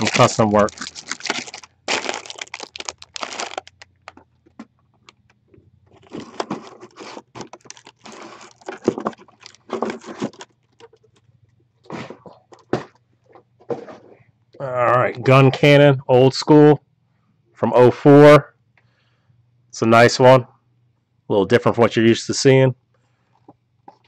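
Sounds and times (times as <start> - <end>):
cardboard boxes rustling and scraping: 5.9 - 10.5, 11.8 - 14.2.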